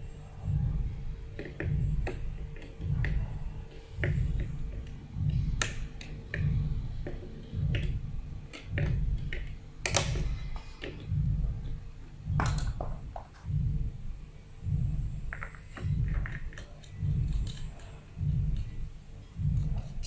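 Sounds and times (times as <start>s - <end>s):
low bass beat: 0.0s - 20.0s
pliers clicking on plastic: 9.3s - 11.0s.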